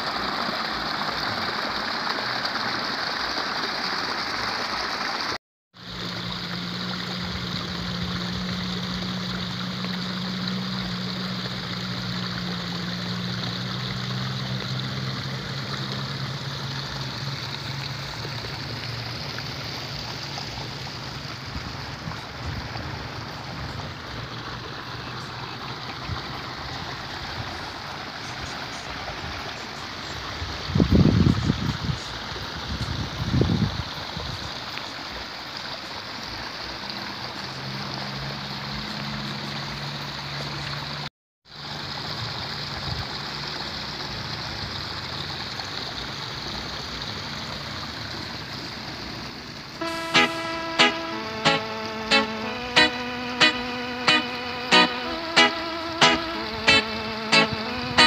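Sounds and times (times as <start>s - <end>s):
water flowing through channel: 0.0s - 57.7s
low engine hum: 5.8s - 28.1s.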